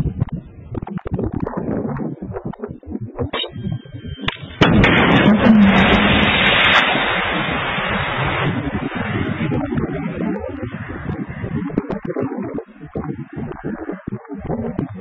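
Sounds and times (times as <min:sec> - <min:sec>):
missile launch blast: 0:04.4 - 0:09.8
missile rushing hiss: 0:04.5 - 0:09.3.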